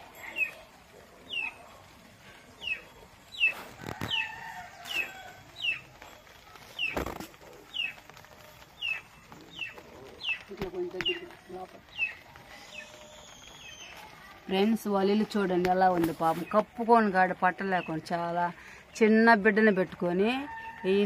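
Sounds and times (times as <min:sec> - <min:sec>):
chick peeping: 0:02.6 - 0:05.9, 0:06.8 - 0:08.0, 0:08.7 - 0:11.2, 0:11.9 - 0:14.0.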